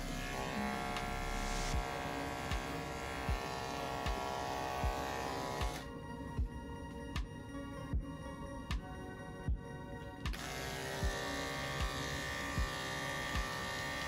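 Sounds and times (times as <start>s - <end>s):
electric clipper buzzing: 0.0s - 5.9s, 10.3s - 14.0s
background music with beat: 0.0s - 14.0s.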